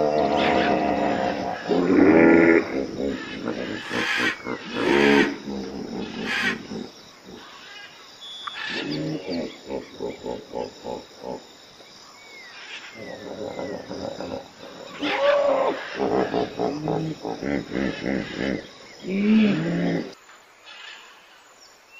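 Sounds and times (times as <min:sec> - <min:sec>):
hippopotamus grunting: 0:00.0 - 0:07.5, 0:13.0 - 0:20.2.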